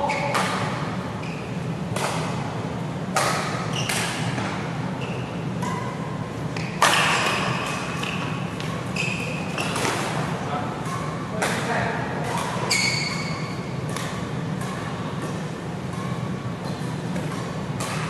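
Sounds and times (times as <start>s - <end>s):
shoes squeaking on court: 0.0s - 1.7s, 3.6s - 10.2s, 12.5s - 13.8s
rackets striking shuttlecock: 1.9s - 2.5s, 3.1s - 4.6s, 6.5s - 8.9s, 9.5s - 18.0s.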